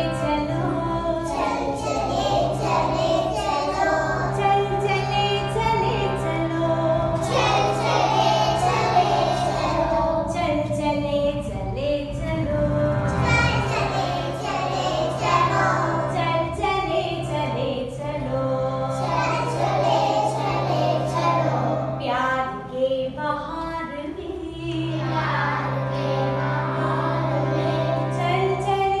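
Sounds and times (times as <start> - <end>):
children singing: 0.0 - 10.3, 13.1 - 16.8, 18.6 - 22.0, 24.9 - 28.2
harmonium drone: 0.0 - 11.6, 12.4 - 22.4, 24.9 - 29.0.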